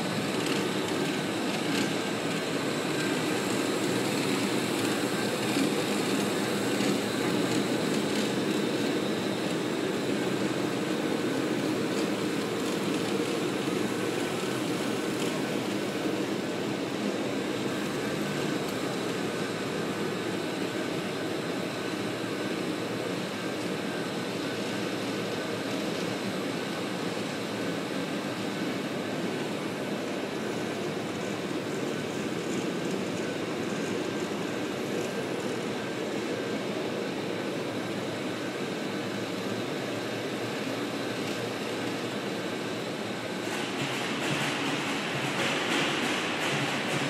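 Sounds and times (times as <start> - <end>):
floor grinder grinding concrete: 0.0 - 21.4
dust extractor running: 0.0 - 47.0.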